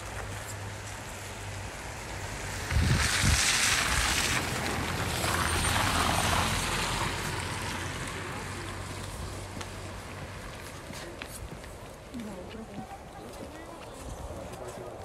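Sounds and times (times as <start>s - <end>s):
wind gusting on microphone: 2.3s - 7.9s, 13.0s - 15.0s.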